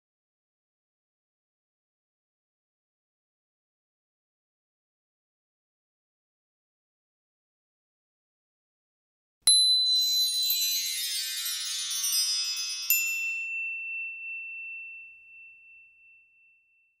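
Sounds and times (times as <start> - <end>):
shimmering chime cascade: 9.8 - 15.0
bright ding: 12.1 - 17.0.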